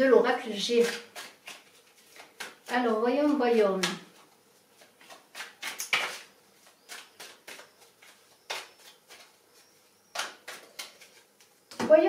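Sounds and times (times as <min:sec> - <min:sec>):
cards being shuffled: 0:00.5 - 0:11.9.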